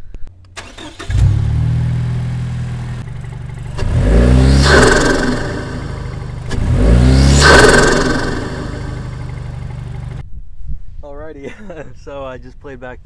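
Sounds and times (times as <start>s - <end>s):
car engine idling and revving: 0.5s - 10.2s
turbo intake rush: 0.6s - 10.2s.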